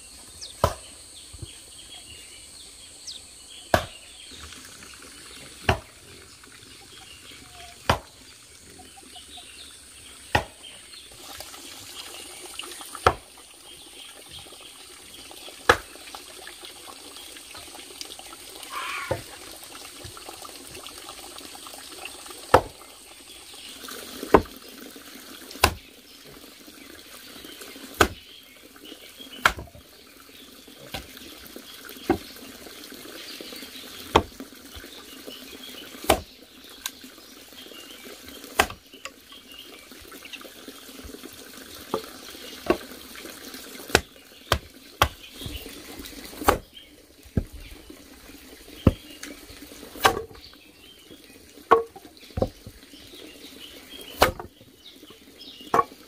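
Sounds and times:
running water: 0:00.0 - 0:56.0
axe chopping firewood: 0:00.6 - 0:00.9, 0:03.7 - 0:04.1, 0:05.6 - 0:06.0, 0:07.8 - 0:08.2, 0:10.2 - 0:10.7, 0:13.0 - 0:13.3, 0:15.7 - 0:15.9, 0:22.5 - 0:22.8, 0:24.3 - 0:24.5, 0:25.6 - 0:25.8, 0:28.0 - 0:28.2, 0:29.4 - 0:29.8, 0:30.9 - 0:31.2, 0:32.0 - 0:32.3, 0:34.1 - 0:34.4, 0:36.0 - 0:36.3, 0:38.5 - 0:38.8, 0:41.9 - 0:42.9, 0:43.9 - 0:45.7, 0:46.3 - 0:46.8, 0:47.4 - 0:47.6, 0:48.8 - 0:49.3, 0:50.0 - 0:50.4, 0:51.7 - 0:52.6, 0:54.1 - 0:54.5, 0:55.7 - 0:56.0.

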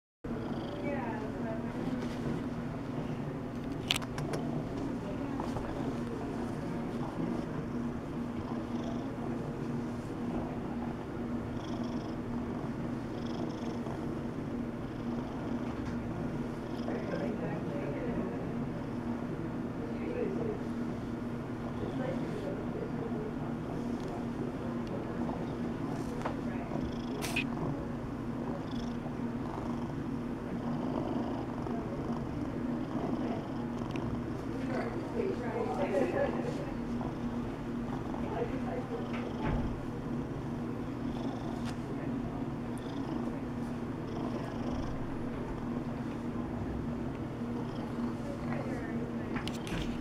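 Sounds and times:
cat purring: 0:11.5 - 0:17.4, 0:28.4 - 0:35.1, 0:37.1 - 0:39.4, 0:40.7 - 0:41.7, 0:42.7 - 0:43.3, 0:44.1 - 0:45.0, 0:47.4 - 0:48.8.

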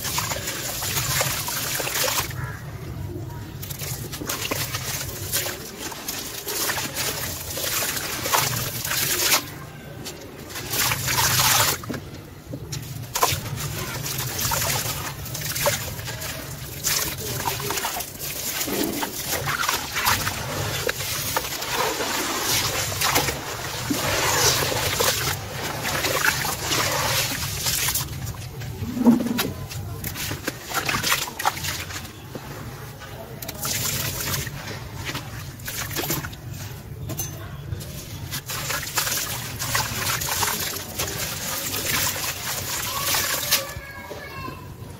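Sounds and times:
hands sloshing water: 0:00.0 - 0:02.6, 0:03.6 - 0:12.1, 0:12.8 - 0:32.8, 0:33.4 - 0:36.8, 0:37.8 - 0:43.8
wet cement crumbling by hand: 0:03.5 - 0:32.4, 0:37.7 - 0:43.8
pieces splashing into water: 0:03.6 - 0:12.0, 0:12.8 - 0:28.5, 0:29.2 - 0:32.2, 0:33.4 - 0:36.5, 0:37.8 - 0:43.8.

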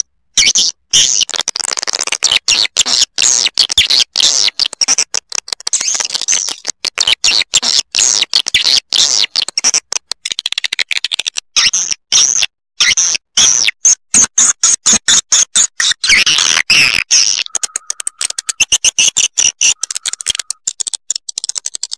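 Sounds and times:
high-pitched swiftlet chirps: 0:17.1 - 0:20.6.

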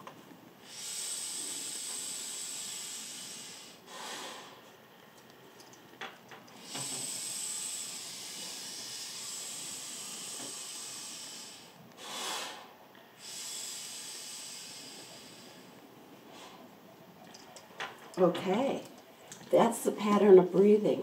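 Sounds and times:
breathing through a snorkel: 0:00.6 - 0:05.6, 0:06.6 - 0:16.7.

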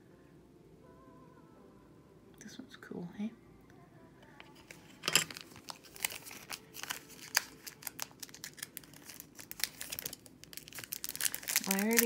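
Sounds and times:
plastic packaging crackling: 0:04.6 - 0:12.0.

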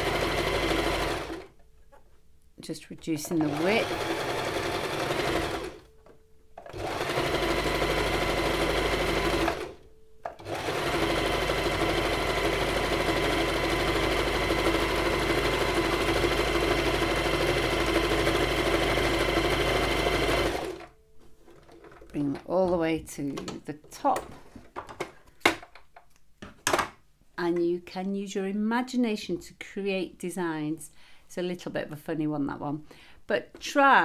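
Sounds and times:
sewing machine stitching: 0:00.0 - 0:01.5, 0:03.2 - 0:05.9, 0:06.6 - 0:20.9.

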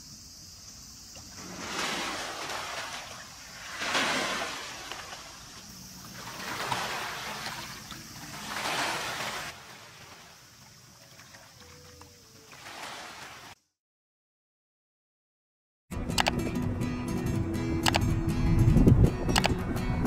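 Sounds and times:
waves washing onto pebbly shore: 0:01.4 - 0:10.4.

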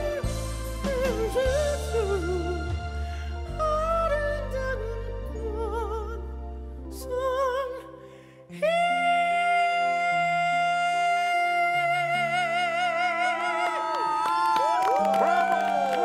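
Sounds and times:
man singing live: 0:00.0 - 0:06.2, 0:08.6 - 0:14.1
backing music: 0:00.0 - 0:07.9.

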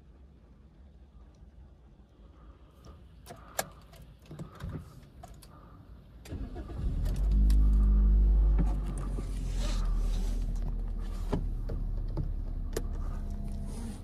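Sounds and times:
car engine starting and idling: 0:02.8 - 0:14.0.

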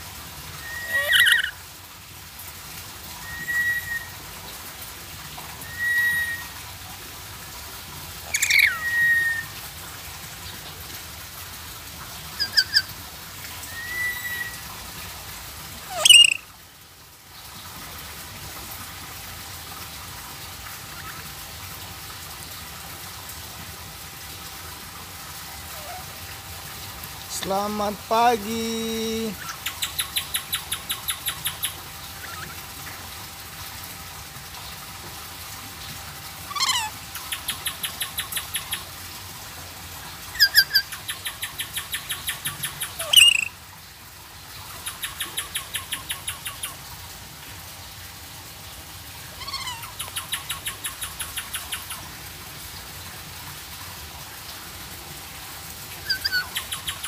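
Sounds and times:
parrot whistles and chirps: 0:00.6 - 0:01.6, 0:03.2 - 0:04.2, 0:05.6 - 0:06.5, 0:08.3 - 0:09.5, 0:12.4 - 0:12.9, 0:13.7 - 0:14.6, 0:15.9 - 0:16.4, 0:36.5 - 0:36.9, 0:40.4 - 0:40.9, 0:41.5 - 0:43.5, 0:56.0 - 0:57.0
loud sharp bird call: 0:16.0 - 0:16.4, 0:43.0 - 0:43.5.

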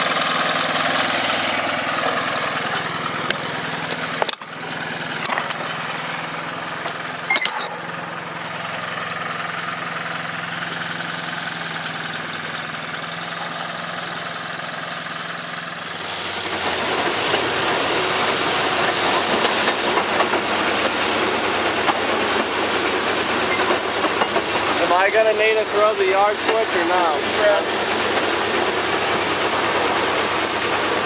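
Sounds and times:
diesel engine running: 0:00.0 - 0:31.0
rail vehicle rumbling on track: 0:15.2 - 0:31.0.

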